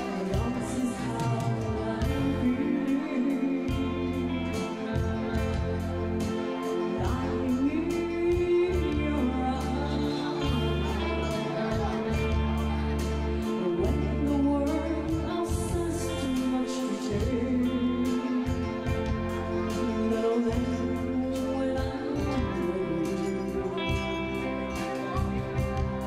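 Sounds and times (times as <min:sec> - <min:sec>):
song with singing and steady beat: 0:00.0 - 0:26.0.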